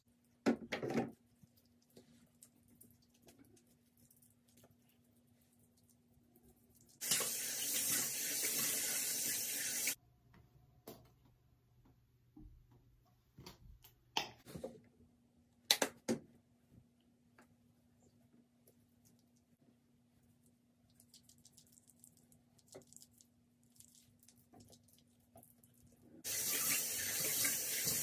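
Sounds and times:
sink tap running: 7.0 - 10.0, 26.3 - 28.0.

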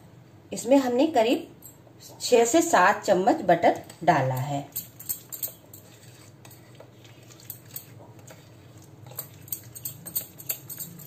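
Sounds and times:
spoon scraping paste: 4.8 - 11.0
spoon clicking on glass: 9.1 - 11.0.

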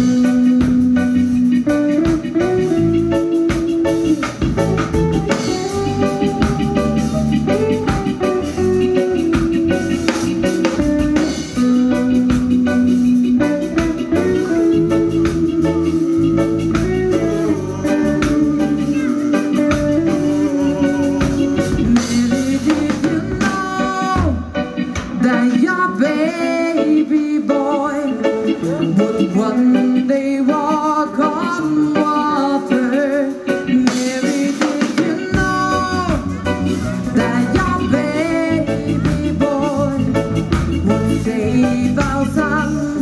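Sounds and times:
melody of long held notes: 0.0 - 30.4
reggae band playing: 0.0 - 43.0.

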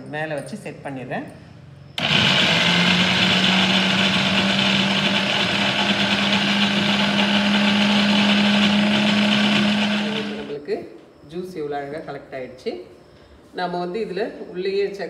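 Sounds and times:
mixer grinder motor humming: 2.0 - 10.6.

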